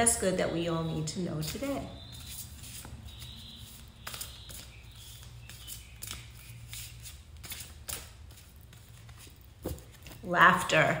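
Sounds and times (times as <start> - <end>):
cards being shuffled: 2.2 - 10.3.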